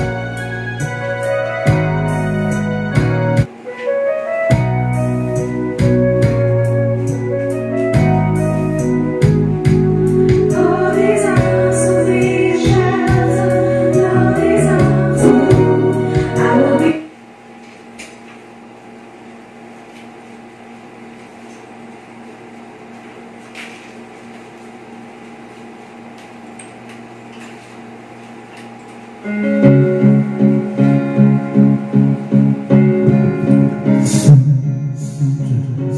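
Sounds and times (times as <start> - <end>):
karaoke song over speakers: 0.0 - 17.1, 29.3 - 35.9
steady low hum: 4.5 - 35.9.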